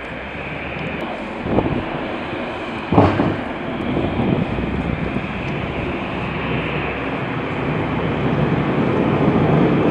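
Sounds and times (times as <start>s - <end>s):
low background rumble: 0.0s - 9.9s.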